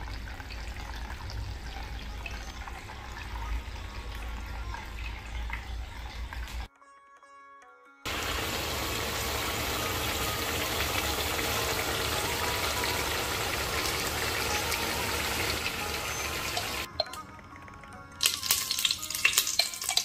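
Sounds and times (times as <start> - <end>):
meat sizzling in a pan: 8.1 - 16.9, 18.2 - 20.0.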